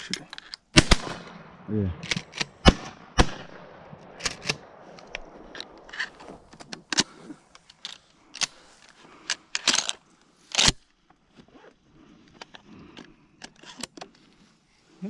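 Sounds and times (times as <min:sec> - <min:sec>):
shotgun clicks and knocks: 0:02.0 - 0:08.6
rustling through dry grass: 0:14.1 - 0:15.0.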